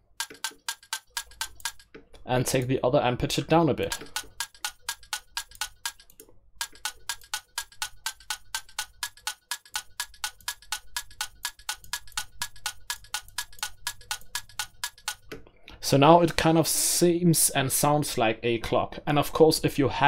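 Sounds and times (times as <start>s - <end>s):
clock-like percussion tick-tock: 0.2s - 1.9s, 3.8s - 15.4s.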